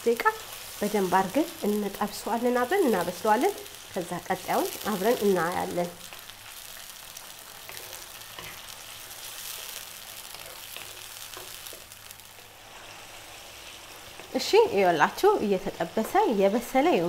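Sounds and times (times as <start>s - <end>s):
chicken sizzling in a frying pan: 0.0s - 17.0s
wooden spoon scraping a pan: 7.6s - 8.7s.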